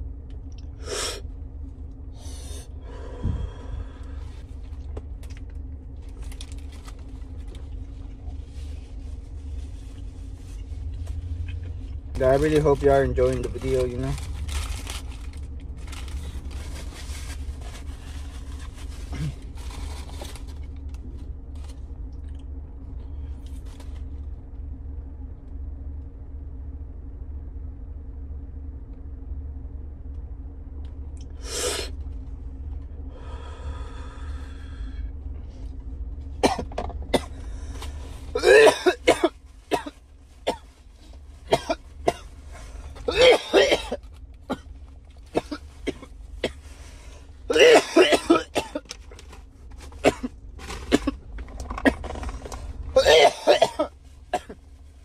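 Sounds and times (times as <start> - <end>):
steady low hum: 0.0 - 55.0
paper wrapper crinkling: 12.2 - 21.8
throat clearing: 19.1 - 19.4, 53.0 - 54.5
man coughing: 36.4 - 37.4, 38.4 - 39.9, 41.5 - 42.2, 43.0 - 44.7, 47.5 - 48.8, 53.0 - 54.6.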